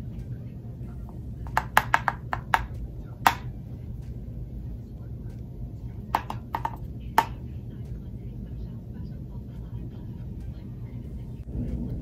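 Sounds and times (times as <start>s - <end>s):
steady low hum: 0.0s - 12.0s
makeup tools tapping and clicking: 1.4s - 3.5s, 6.1s - 7.4s.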